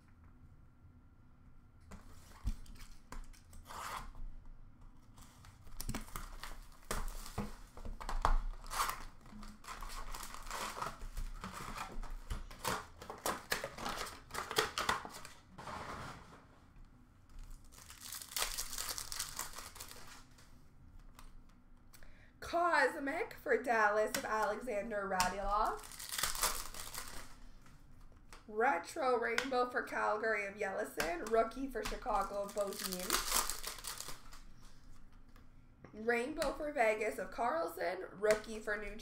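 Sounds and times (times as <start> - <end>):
wrapping tearing and crinkling: 5.0 - 15.5, 17.4 - 21.4, 25.6 - 28.4, 31.2 - 35.0.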